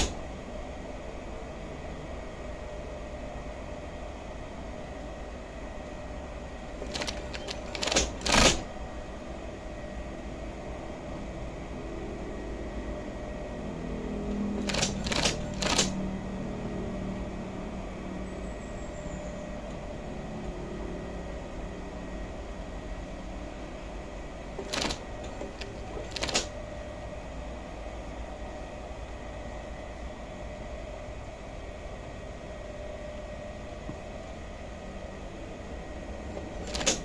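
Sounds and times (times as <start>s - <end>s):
sewing machine motor humming: 0.0s - 0.2s, 6.8s - 8.7s, 14.6s - 16.0s, 24.6s - 26.5s
sharp mechanical clicks: 0.0s - 0.2s, 6.8s - 8.7s, 14.6s - 16.0s, 24.6s - 26.6s, 36.4s - 37.0s.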